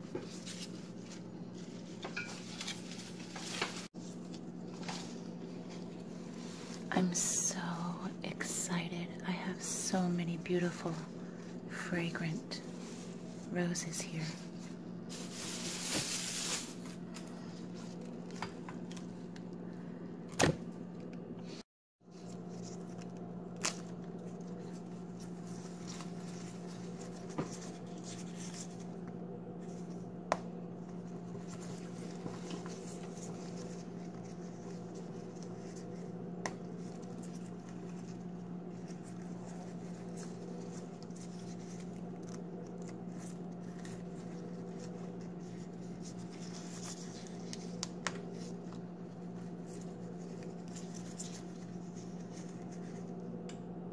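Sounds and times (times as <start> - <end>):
steady low hum: 0.0 - 53.9
petals rustling and tearing: 22.1 - 53.3.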